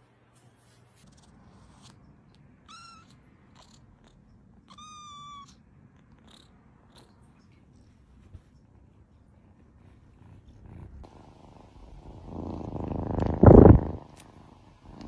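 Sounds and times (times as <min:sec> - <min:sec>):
cat meowing: 0:02.6 - 0:07.2.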